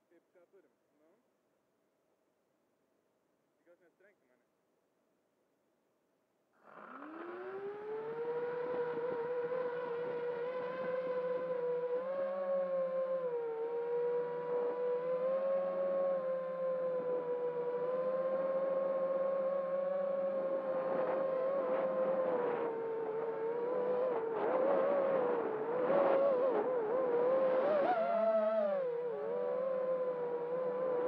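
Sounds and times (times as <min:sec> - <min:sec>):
drone motors and propellers whining: 0:06.6 - 0:31.0.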